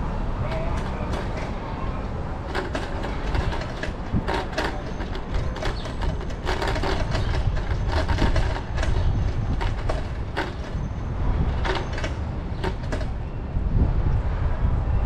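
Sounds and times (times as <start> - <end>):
bicycle tyres rumbling: 0.0 - 15.0
wind on microphone: 0.0 - 15.0
bike clicks and rattles: 0.1 - 13.7.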